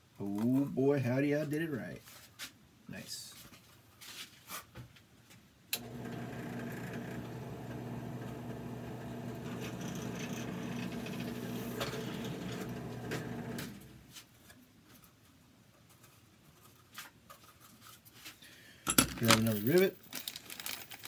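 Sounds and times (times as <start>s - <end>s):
power tool motor humming: 5.8s - 14.0s.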